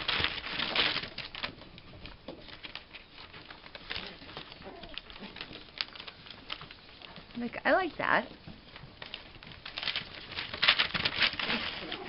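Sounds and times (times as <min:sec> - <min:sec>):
newspaper rustling and crinkling: 0:00.0 - 0:12.0
paws scratching on paper: 0:00.0 - 0:12.0.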